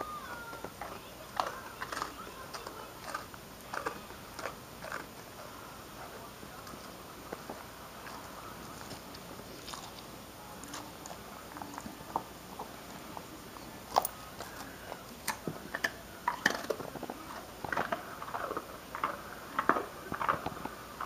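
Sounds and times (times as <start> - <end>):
dog chewing a bone: 0.3 - 21.0.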